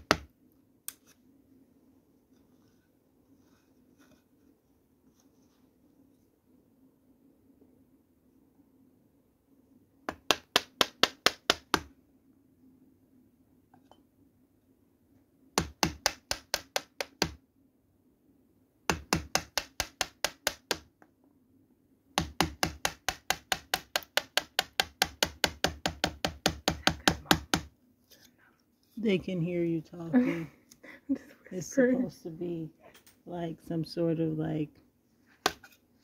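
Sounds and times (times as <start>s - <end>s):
chisel knocking into wood: 18.9s - 20.8s, 22.2s - 27.7s.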